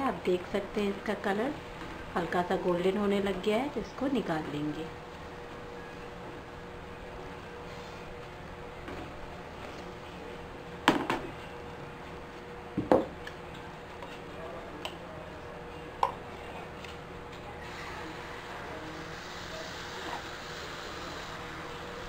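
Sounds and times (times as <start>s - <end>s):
hot oil sizzling: 19.0s - 21.4s.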